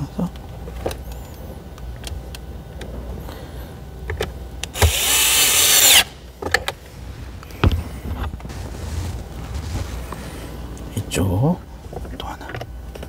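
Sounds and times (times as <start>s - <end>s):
electric screwdriver motor: 4.8s - 6.1s.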